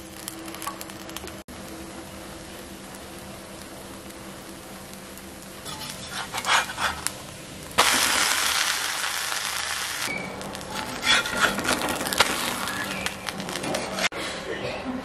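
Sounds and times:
loud sizzle on griddle: 0.0s - 14.1s
metal spatula scraping griddle: 5.6s - 7.2s, 10.0s - 14.1s.

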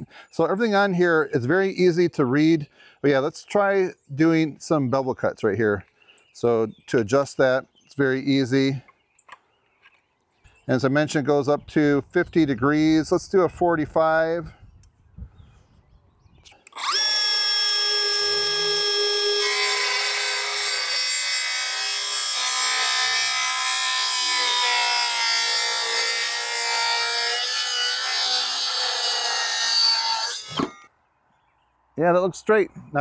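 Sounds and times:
circular saw cutting wood: 16.6s - 30.9s.

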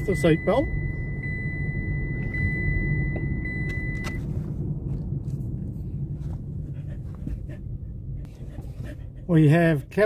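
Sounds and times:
seatbelt warning tone: 0.0s - 4.4s
car road and engine rumble: 0.0s - 10.0s.

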